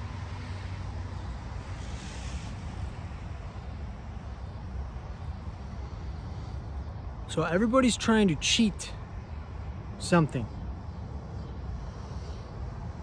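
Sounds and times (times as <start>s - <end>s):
faint hiss: 0.0s - 10.3s.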